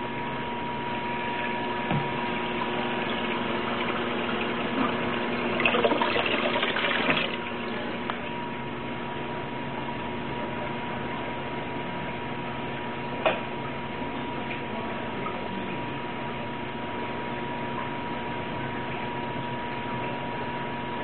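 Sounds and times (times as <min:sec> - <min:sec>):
steady hum: 0:00.0 - 0:21.0
water splashing and gushing: 0:02.3 - 0:07.8.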